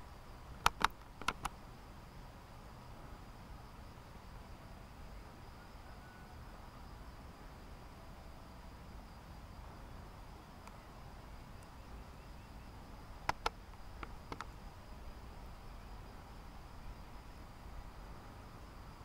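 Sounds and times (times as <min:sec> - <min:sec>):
sharp clicks: 0:00.6 - 0:01.6, 0:13.2 - 0:14.5.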